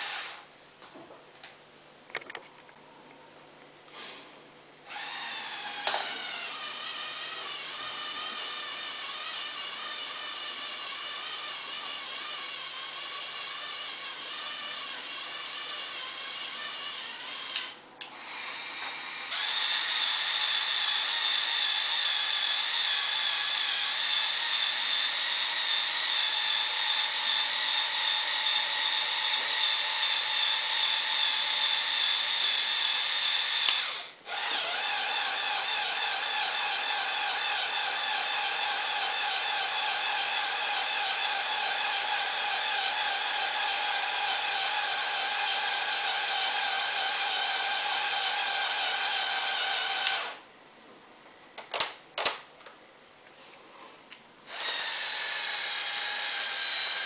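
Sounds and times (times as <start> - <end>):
toy electric motors whirring: 4.9 - 50.4.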